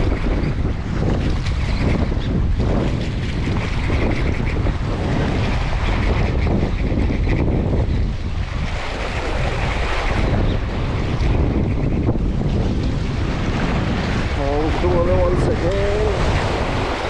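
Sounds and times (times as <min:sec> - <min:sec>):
wind buffeting microphone: 0:00.0 - 0:17.0
waves washing against rocks: 0:07.8 - 0:17.0.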